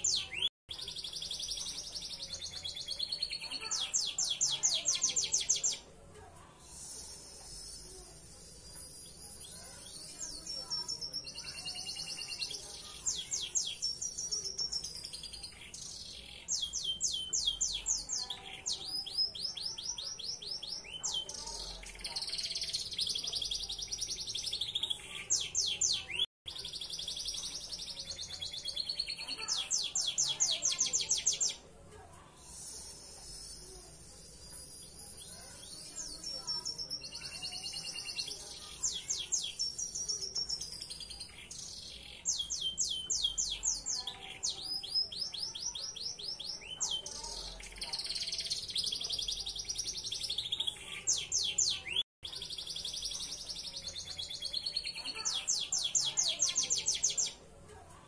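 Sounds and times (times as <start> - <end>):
canary singing trills: 32.4 - 57.5.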